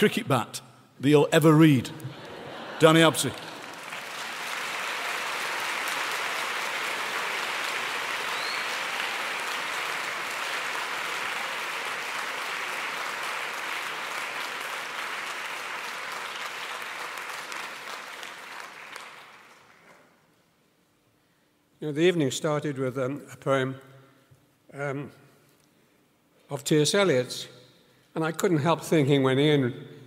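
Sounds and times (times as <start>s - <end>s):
audience applauding: 2.2s - 20.2s.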